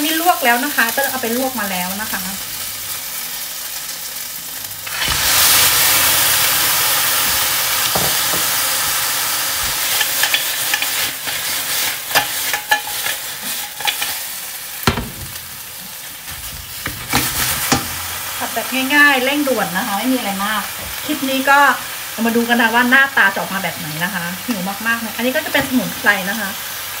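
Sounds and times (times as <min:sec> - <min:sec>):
food sizzling in hot oil: 0:00.0 - 0:27.0
spatula scraping metal pan: 0:09.6 - 0:14.3.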